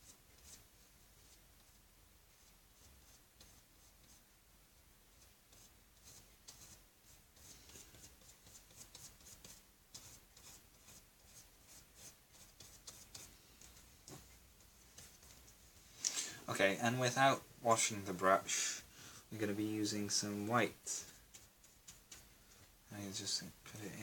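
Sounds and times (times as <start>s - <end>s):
paintbrush strokes on canvas: 0.0s - 24.0s.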